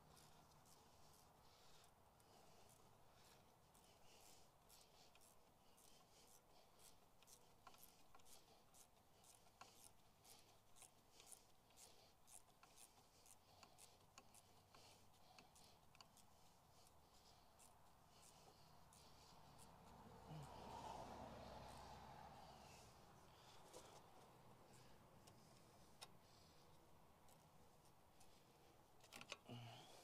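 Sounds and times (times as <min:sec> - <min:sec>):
hand ratchet clicking: 0:02.6 - 0:19.7.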